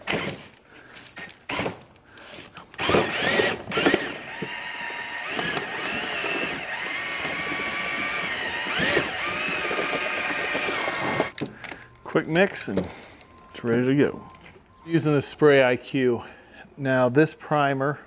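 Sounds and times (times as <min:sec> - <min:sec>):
cordless drill whining: 0:00.0 - 0:11.9.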